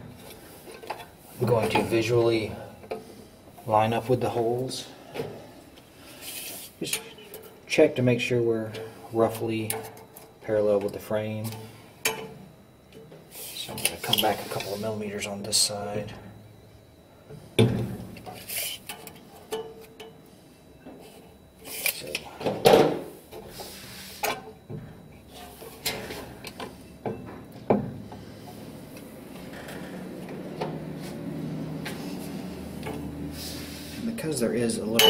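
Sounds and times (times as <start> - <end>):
metal rubbing: 18.3 - 19.0.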